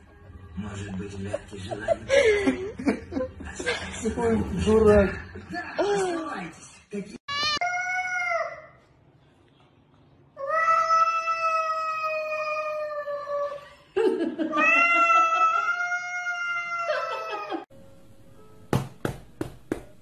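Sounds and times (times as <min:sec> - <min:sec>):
cat yowling: 0:14.6 - 0:17.5.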